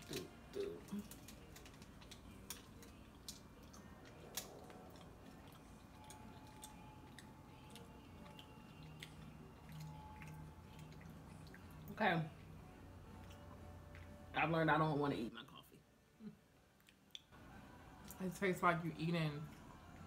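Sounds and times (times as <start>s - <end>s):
quiet chewing: 0.0s - 11.9s, 13.1s - 14.2s, 16.8s - 17.3s.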